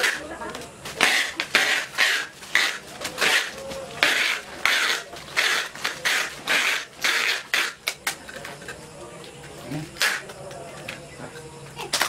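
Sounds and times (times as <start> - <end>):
plastic wrap rasping off roll: 0.0 - 8.5.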